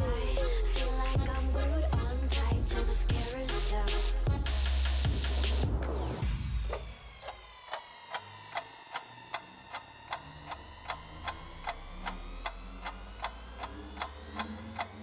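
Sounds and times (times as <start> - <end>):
low notes: 0.0 - 15.0
clock-like ticking: 6.5 - 15.0
sustained tone sinking and rising: 9.5 - 15.0.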